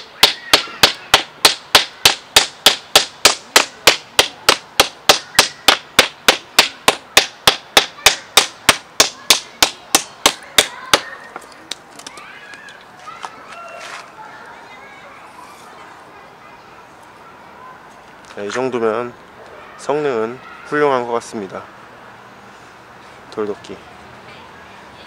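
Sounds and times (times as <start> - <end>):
stone axe chopping wood: 0.0 - 11.1.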